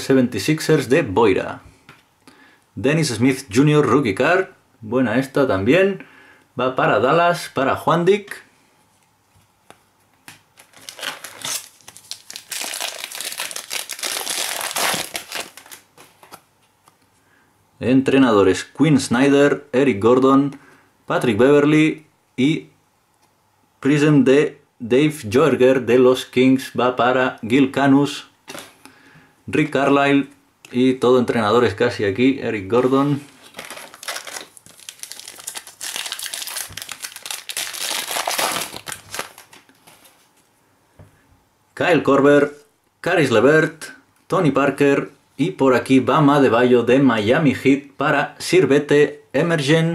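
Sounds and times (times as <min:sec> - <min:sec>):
plastic wrapper crinkling: 0:10.5 - 0:16.4, 0:32.8 - 0:40.4.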